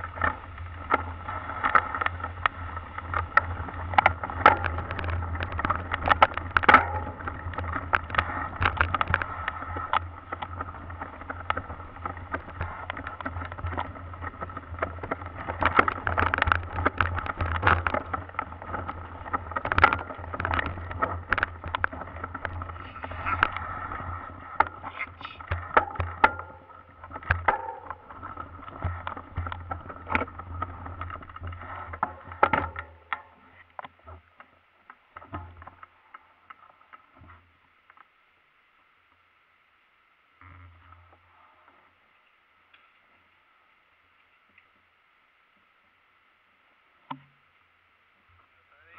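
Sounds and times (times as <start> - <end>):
bike rattling over stones: 0.0 - 38.2.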